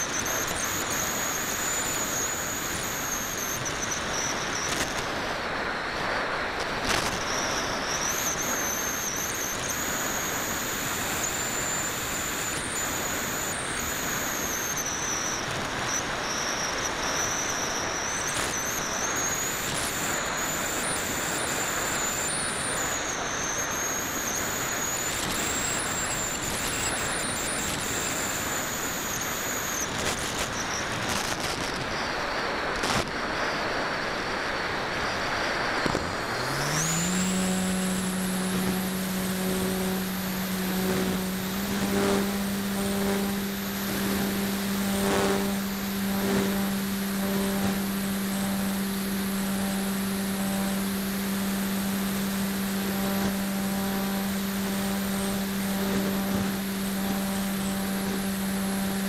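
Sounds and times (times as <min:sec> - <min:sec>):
thin high whine: 0:00.0 - 0:59.0.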